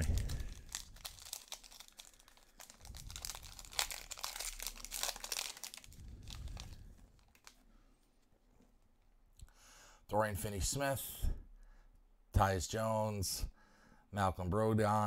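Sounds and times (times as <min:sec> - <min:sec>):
foil wrapper crinkling: 0:00.0 - 0:07.6.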